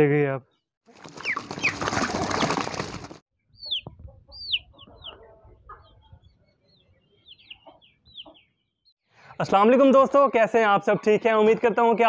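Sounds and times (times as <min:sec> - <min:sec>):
chicks peeping: 0:00.9 - 0:08.9.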